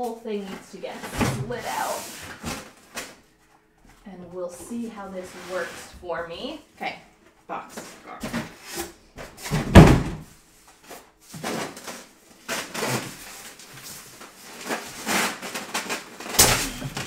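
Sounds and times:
foam scraping against cardboard: 5.2 - 6.0.

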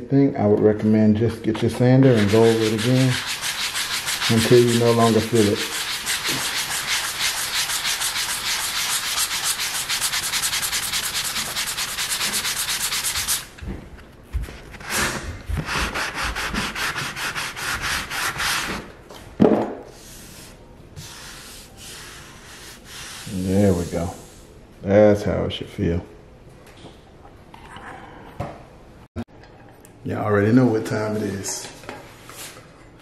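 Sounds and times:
sanding sponge rubbing wood filler: 2.0 - 13.5, 15.6 - 18.7, 21.0 - 24.2.

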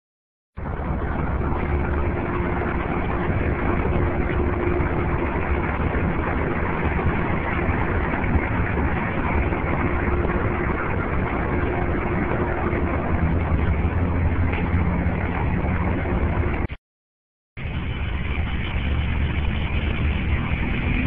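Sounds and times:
faint steady hum: 0.6 - 16.7
muffled outdoor rumble: 0.6 - 16.8, 17.6 - 21.0.

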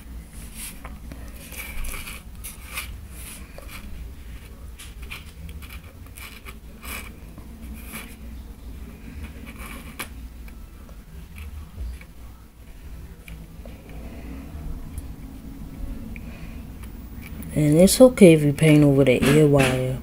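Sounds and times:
steady low hum: 0.0 - 20.0
scratching and rustling on cardboard: 0.4 - 8.2, 9.2 - 10.1.

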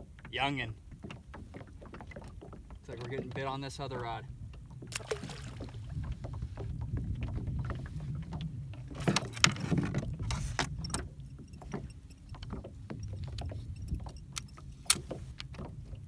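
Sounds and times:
fishing rod and reel rattling: 7.3 - 16.0.

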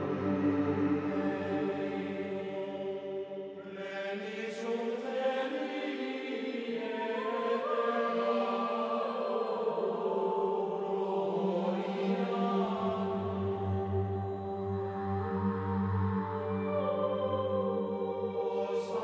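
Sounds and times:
voices chanting long notes: 0.0 - 19.0.

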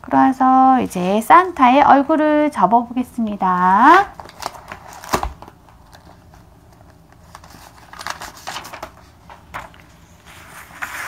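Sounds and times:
paper rustling and tapping: 4.0 - 11.0.

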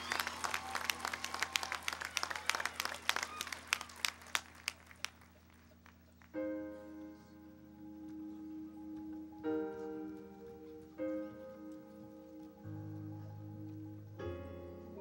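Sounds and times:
scattered applause: 0.0 - 6.4.

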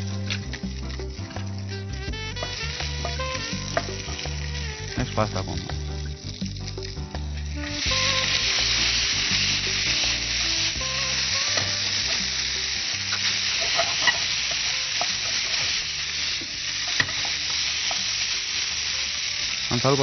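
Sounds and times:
food sizzling in a pan: 0.0 - 20.0
spatula stirring in a pan: 7.6 - 19.7.

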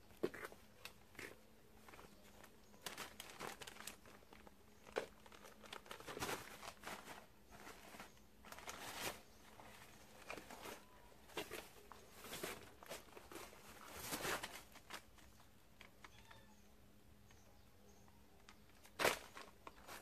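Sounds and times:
newspaper rustling and crinkling: 1.8 - 15.5, 18.7 - 20.0.

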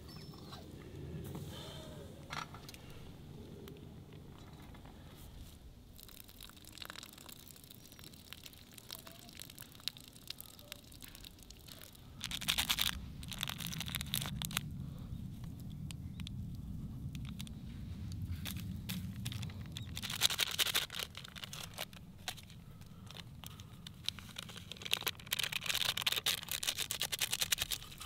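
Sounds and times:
low steady hum: 0.0 - 28.0
plastic packaging crinkling: 5.9 - 14.7, 17.1 - 28.0.

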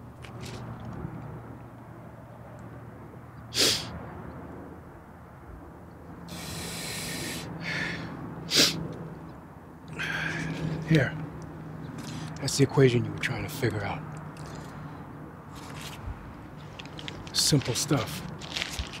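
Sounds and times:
man snorting through nose: 3.5 - 3.9, 6.3 - 8.8.

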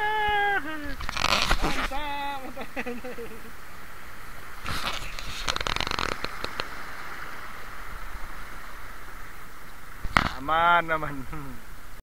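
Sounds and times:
river water rushing: 0.0 - 12.0
paddle splashing and knocking: 4.6 - 6.9.

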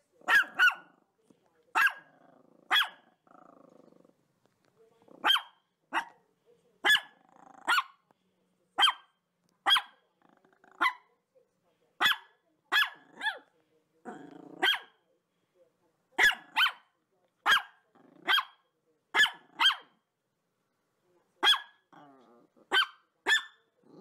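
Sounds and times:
dog barking: 0.2 - 1.0, 1.7 - 3.2, 5.2 - 6.2, 6.8 - 8.0, 8.8 - 10.0, 10.7 - 11.1, 12.0 - 13.5, 14.6 - 15.0, 16.2 - 20.0, 21.4 - 21.9, 22.7 - 23.7.

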